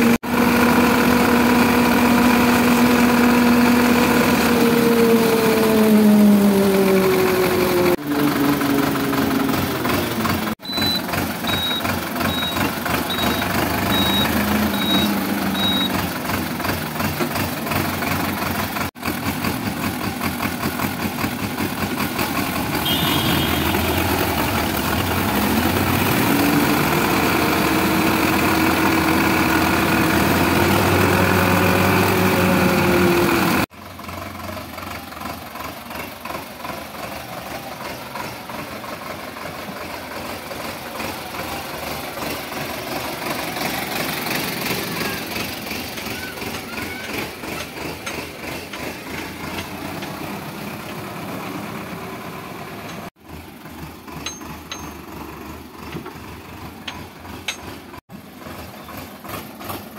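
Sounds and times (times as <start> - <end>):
tractor diesel engine running: 0.0 - 59.9
short high beeps: 10.0 - 16.0.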